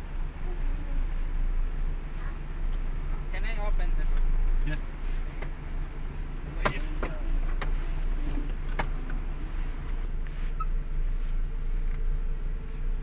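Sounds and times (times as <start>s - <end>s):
car engine idling: 0.0s - 13.0s
light clicks and knocks: 6.4s - 7.8s.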